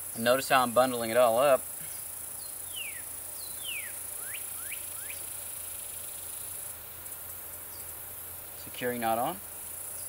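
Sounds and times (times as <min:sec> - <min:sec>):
high-pitched insect chorus: 0:00.0 - 0:10.0
bird whistling: 0:02.4 - 0:05.2.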